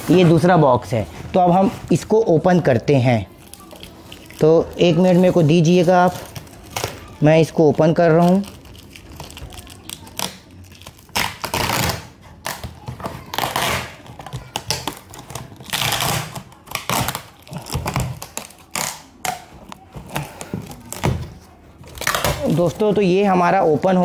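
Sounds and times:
tape and cardboard ripping: 0:08.2 - 0:21.2, 0:21.8 - 0:22.8.

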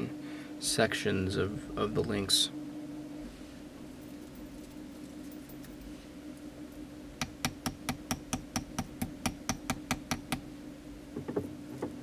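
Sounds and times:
hammer tapping on steel block: 0:07.2 - 0:10.4.

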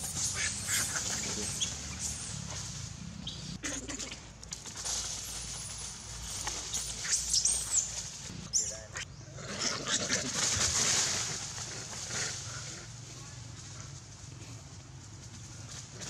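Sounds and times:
monkeys squeaking: 0:00.0 - 0:02.5, 0:05.6 - 0:10.3.

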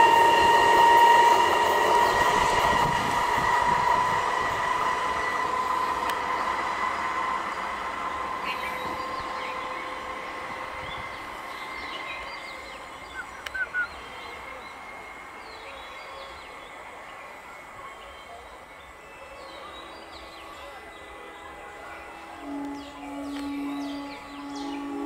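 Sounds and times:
steady whine: 0:00.0 - 0:18.0, 0:18.6 - 0:25.0
train running on rails: 0:00.0 - 0:25.0
birds chirping: 0:07.4 - 0:25.0.

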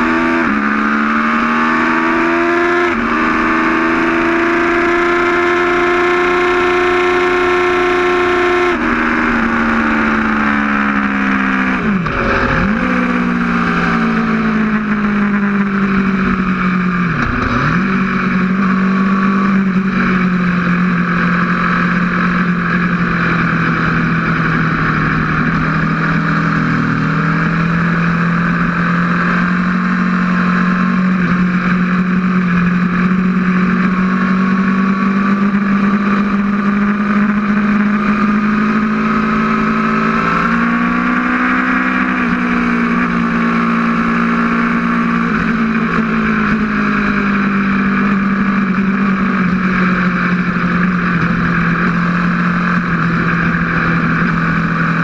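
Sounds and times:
motorcycle engine at high revs: 0:00.0 - 0:55.0
heavy wind rush: 0:11.1 - 0:17.6.

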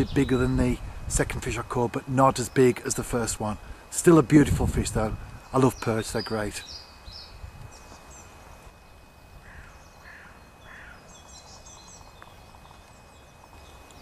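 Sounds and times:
small birds chirping: 0:00.0 - 0:00.8, 0:02.2 - 0:14.0
wind rumble: 0:00.0 - 0:01.7, 0:03.0 - 0:05.5
short bird calls: 0:09.4 - 0:12.4.

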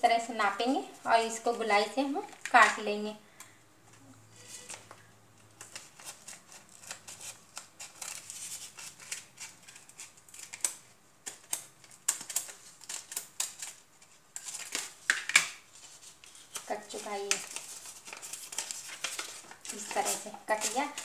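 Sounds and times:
scissors cutting paper: 0:05.6 - 0:13.8, 0:16.2 - 0:21.0.

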